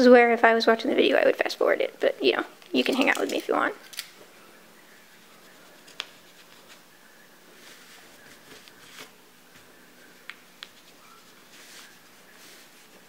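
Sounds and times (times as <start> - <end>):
fabric rustling: 7.5 - 9.7, 10.7 - 13.0.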